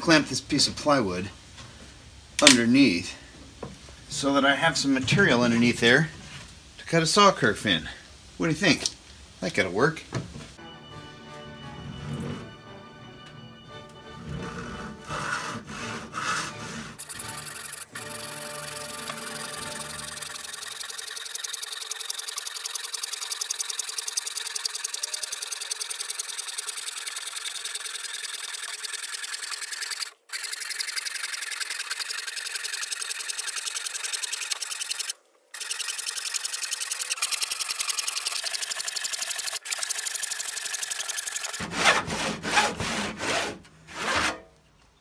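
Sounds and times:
handsaw rasping through wood: 14.2 - 22.0, 41.5 - 44.4.

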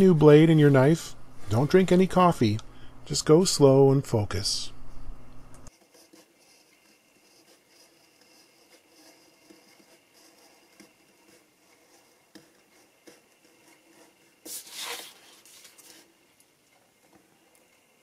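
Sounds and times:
craft knife scratching paper: 5.7 - 16.2
paper rustling: 14.4 - 16.1.

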